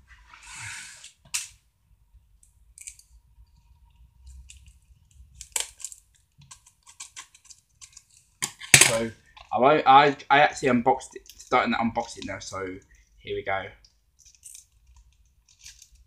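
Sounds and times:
packaging clicks and crackles: 4.3 - 9.6.

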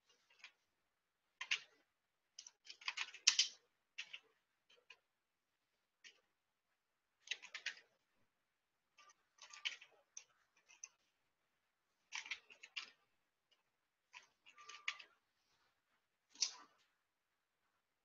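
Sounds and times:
keyboard typing: 12.1 - 15.2.

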